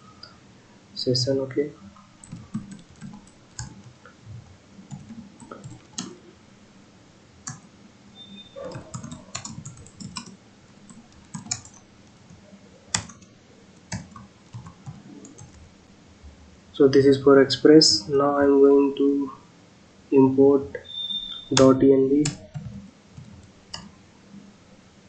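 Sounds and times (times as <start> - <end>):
typing on computer keyboard: 2.2 - 4.0, 4.9 - 6.2, 7.4 - 7.7, 8.6 - 15.6, 21.5 - 23.9.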